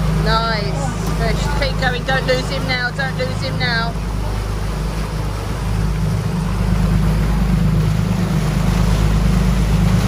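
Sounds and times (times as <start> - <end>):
boat engines droning: 0.0 - 10.0
churning wake: 0.0 - 10.0.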